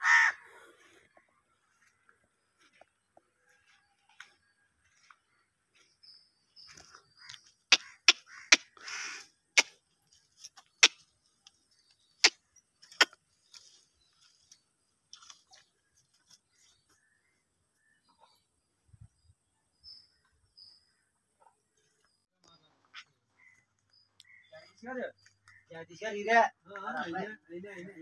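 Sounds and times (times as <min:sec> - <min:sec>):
faint bird chirps: 0:01.1 - 0:26.3.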